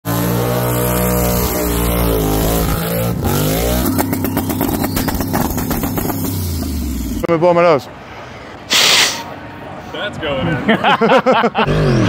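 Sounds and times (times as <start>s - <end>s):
race engine revving: 0.1s - 7.3s, 11.6s - 12.0s.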